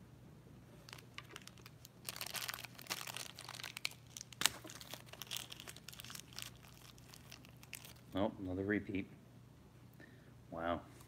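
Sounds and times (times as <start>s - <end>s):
packaging crinkling and tearing: 0.8s - 8.2s.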